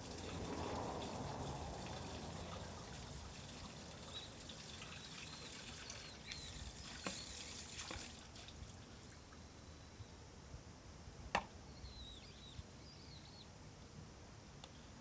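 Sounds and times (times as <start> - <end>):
low steady hiss: 0.0 - 15.0
faint high chirps: 5.0 - 7.6, 11.7 - 13.5.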